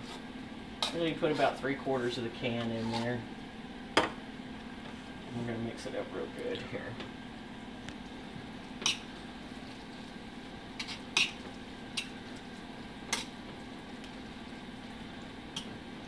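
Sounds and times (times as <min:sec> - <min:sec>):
utensil scraping skillet: 0:00.8 - 0:01.6, 0:02.4 - 0:03.3, 0:08.8 - 0:09.8, 0:10.7 - 0:13.4.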